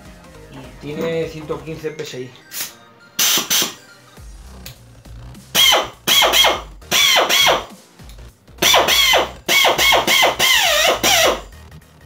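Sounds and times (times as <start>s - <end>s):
pneumatic drill whining: 5.6s - 7.7s, 8.6s - 11.5s.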